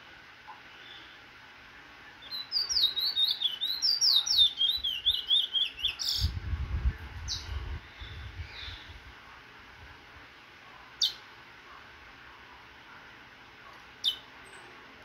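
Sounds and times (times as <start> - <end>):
finch singing: 2.2 - 6.4, 7.2 - 9.0, 11.0 - 11.3, 14.0 - 14.8.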